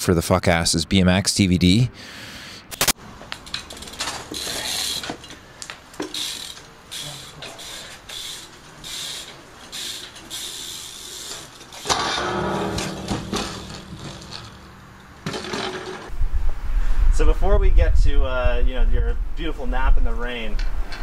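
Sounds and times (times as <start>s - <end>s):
bike rolling: 3.1s - 16.4s
bike freewheel ratcheting: 3.3s - 12.0s, 13.3s - 16.1s.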